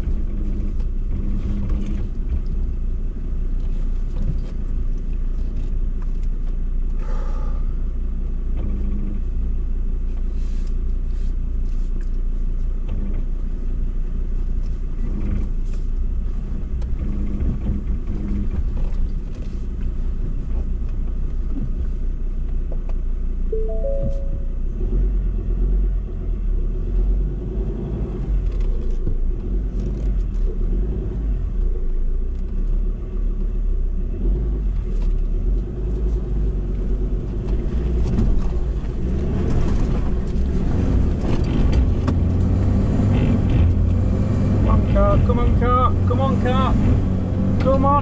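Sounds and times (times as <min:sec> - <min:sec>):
body and suspension rattles: 0:00.0 - 0:07.0, 0:10.1 - 0:23.1, 0:34.8 - 0:48.0
low engine rumble: 0:00.0 - 0:48.0
short tones: 0:23.5 - 0:24.7.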